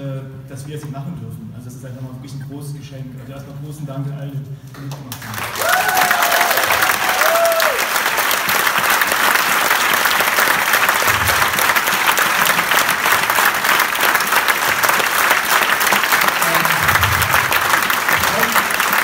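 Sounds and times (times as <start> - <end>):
crowd applauding: 5.1 - 19.0.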